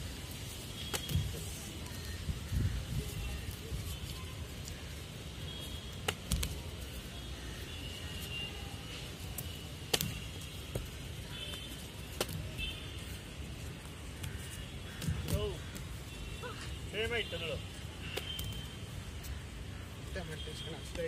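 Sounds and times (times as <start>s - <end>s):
feet slapping kick target: 6.0s - 6.6s, 9.8s - 10.9s.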